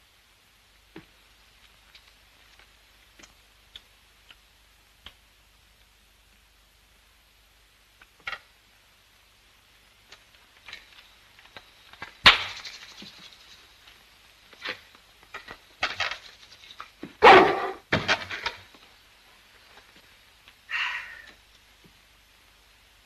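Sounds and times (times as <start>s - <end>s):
dog barking: 17.2s - 17.8s.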